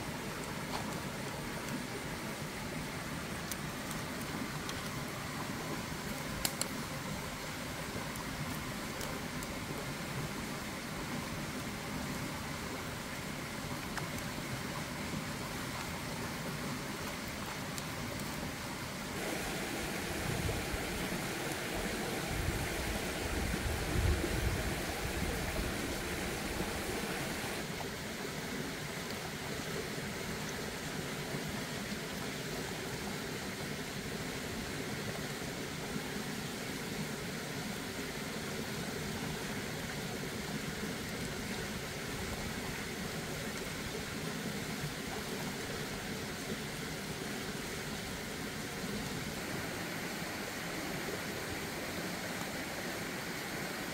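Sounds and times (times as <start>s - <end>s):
steady rushing noise: 19.0s - 27.7s.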